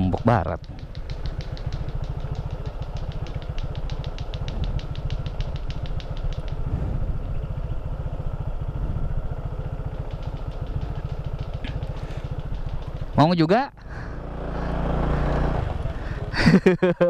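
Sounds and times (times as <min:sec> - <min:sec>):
fast high ticking: 0:00.0 - 0:06.7, 0:09.7 - 0:13.8
motorcycle engine idling: 0:00.0 - 0:17.0.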